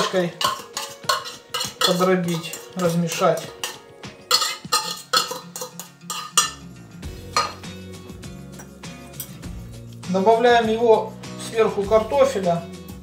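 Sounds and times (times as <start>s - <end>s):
fork scraping ceramic bowl: 0.0s - 6.7s
soft background music: 0.0s - 13.0s.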